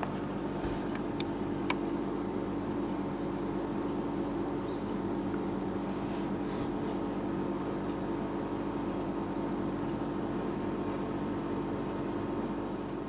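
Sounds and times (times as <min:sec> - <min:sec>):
steady low hum: 0:00.0 - 0:13.0
faint light rustles: 0:00.5 - 0:01.0, 0:05.8 - 0:07.4.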